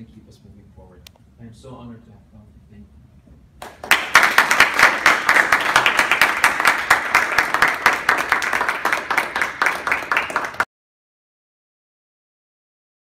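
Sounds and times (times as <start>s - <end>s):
audience applauding: 3.6s - 10.7s.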